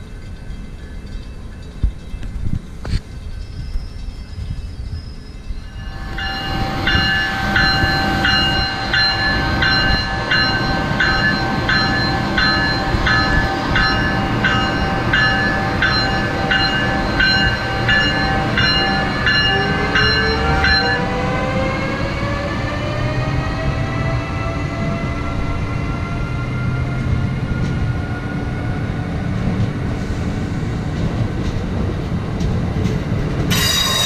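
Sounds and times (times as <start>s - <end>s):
locomotive bell ringing: 5.4s - 21.8s, 33.5s - 34.0s
locomotive passing: 5.4s - 34.0s
rising electric drive whine: 5.6s - 25.2s.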